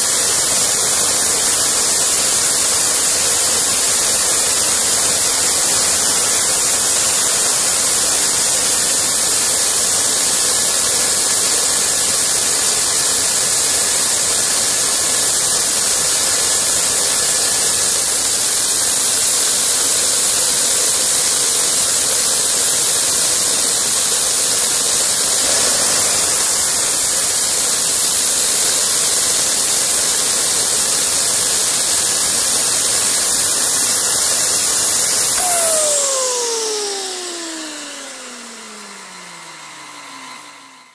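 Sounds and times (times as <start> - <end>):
high turbine whine: 25.2 - 28.5, 35.2 - 40.8
jet engine roar: 25.3 - 28.1, 35.4 - 39.2.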